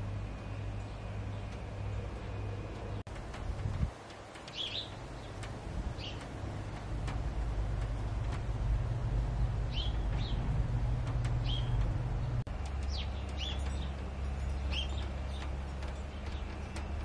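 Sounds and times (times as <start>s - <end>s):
small birds chirping: 0.0s - 17.0s
low rumble: 5.4s - 17.0s.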